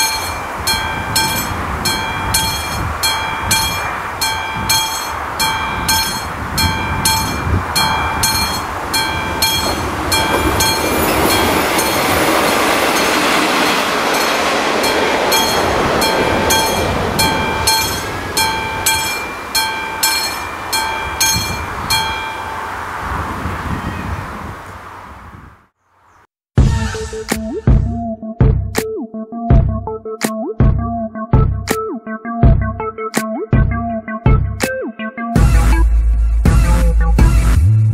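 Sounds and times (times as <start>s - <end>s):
level crossing bell ringing: 0.0s - 13.4s, 14.1s - 22.9s
rushing noise of passing train: 0.0s - 25.7s.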